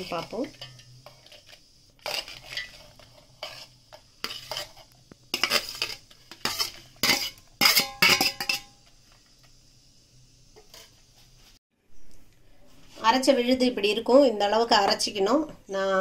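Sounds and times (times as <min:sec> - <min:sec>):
steel ladle scraping metal: 0:00.0 - 0:08.8.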